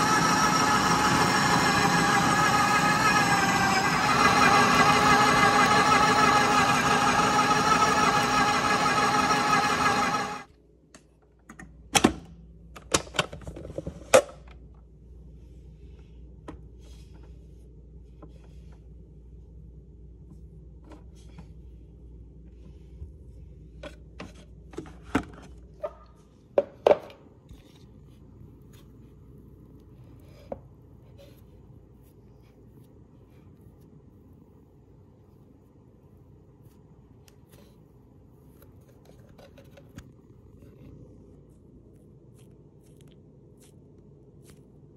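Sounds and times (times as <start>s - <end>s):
food processor motor: 0.0s - 10.5s
faint steady hum: 4.0s - 44.9s.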